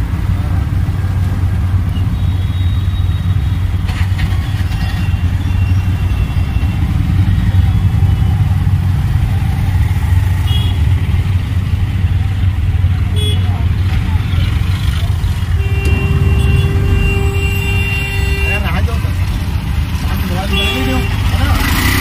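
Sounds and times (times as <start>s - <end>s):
traffic noise: 0.0s - 22.0s
engine droning: 13.8s - 22.0s.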